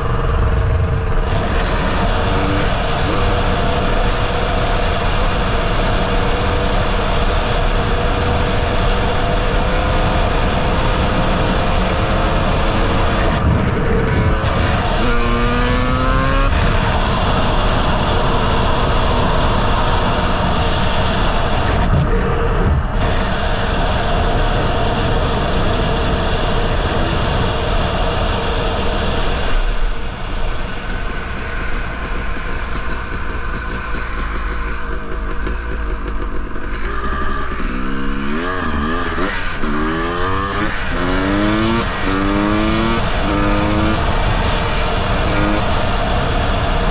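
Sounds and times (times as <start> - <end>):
dirt bike engine revving: 0.0 - 26.7, 31.0 - 46.9
wind noise on microphone: 0.0 - 46.9.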